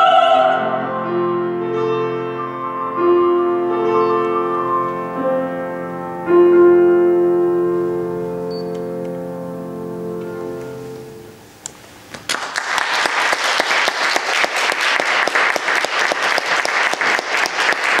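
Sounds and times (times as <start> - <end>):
piano chord ringing: 0.4 - 11.5
audience applause: 12.1 - 18.0.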